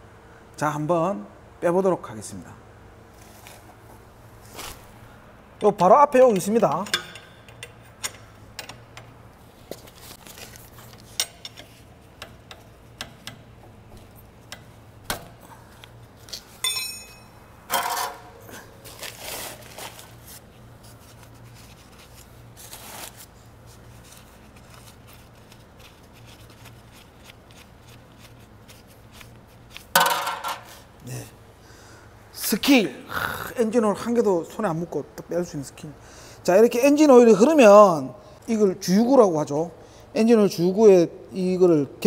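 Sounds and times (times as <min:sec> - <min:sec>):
steady low hum: 0:00.0 - 0:37.1
metallic ringing ping: 0:16.6 - 0:17.4.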